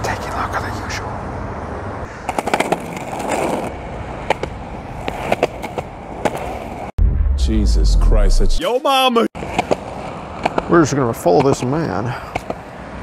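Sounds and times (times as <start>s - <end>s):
skateboard wheels rumbling on concrete: 2.1s - 6.9s
skateboard clacks: 2.2s - 6.6s, 9.4s - 10.7s, 12.3s - 12.6s.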